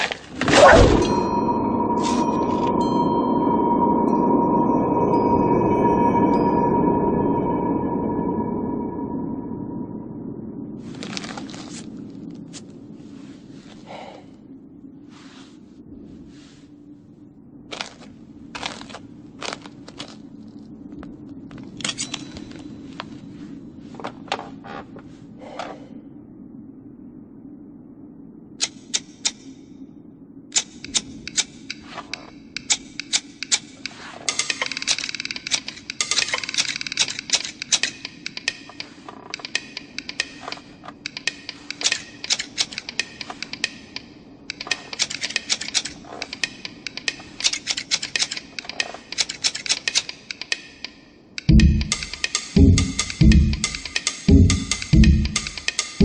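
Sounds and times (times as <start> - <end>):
knitting needles clicking: 30.5 - 56.0
loud drum beat: 51.5 - 56.0.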